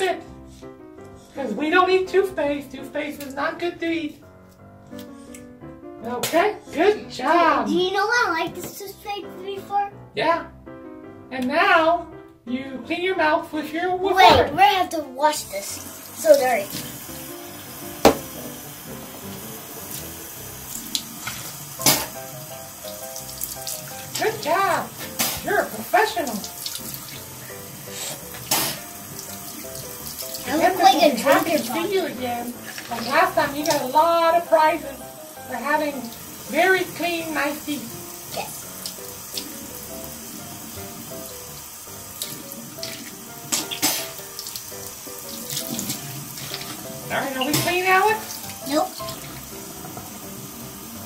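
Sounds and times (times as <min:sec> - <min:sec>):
tap water splashing into basin: 0:16.3 - 0:17.0, 0:17.8 - 0:27.4, 0:28.2 - 0:39.6, 0:40.8 - 0:50.6
sharp knocks: 0:18.0 - 0:18.4.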